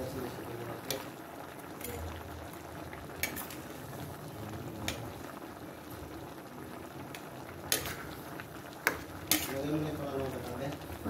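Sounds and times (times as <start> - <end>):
pot bubbling: 0.0 - 11.0.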